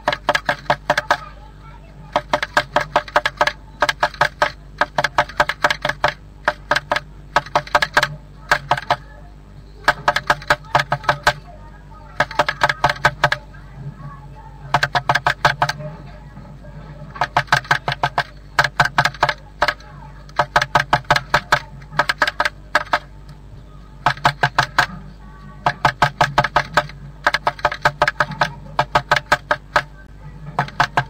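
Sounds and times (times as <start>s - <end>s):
bird pecking on wood: 0.0s - 1.3s, 2.1s - 9.0s, 9.8s - 11.4s, 12.2s - 13.4s, 14.7s - 15.8s, 17.1s - 23.1s, 24.0s - 25.0s, 25.6s - 31.0s.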